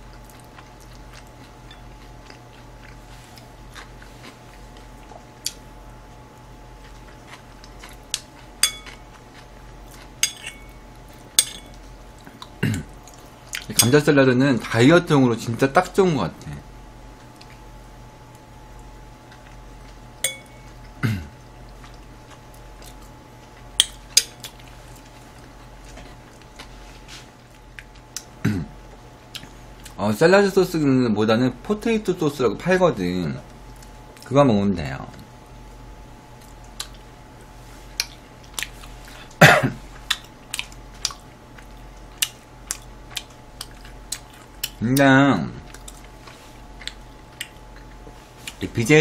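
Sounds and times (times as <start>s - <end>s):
chewing meat: 0.0s - 14.8s, 16.4s - 30.0s, 33.4s - 34.3s, 36.0s - 48.8s
fork clinking against a dish: 8.6s - 9.1s, 10.2s - 10.8s, 11.4s - 11.8s, 13.6s - 14.1s, 20.2s - 20.8s
muffled cough: 21.0s - 21.4s, 28.4s - 28.7s, 39.4s - 39.8s.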